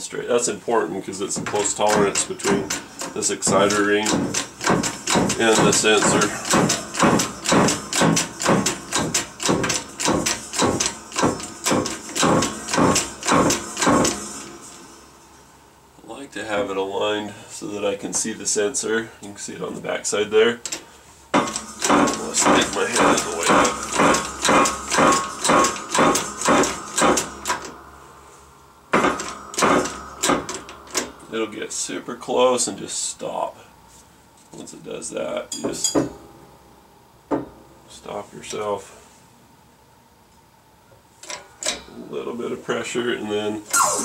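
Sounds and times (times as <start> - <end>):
hydraulic press creaking strokes: 1.3 - 14.9, 21.4 - 27.8, 28.9 - 31.2, 43.7 - 44.0.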